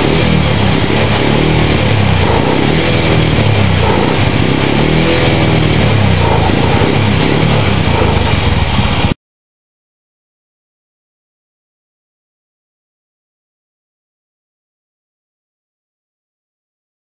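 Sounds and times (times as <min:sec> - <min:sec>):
engine running: 0:00.0 - 0:09.2.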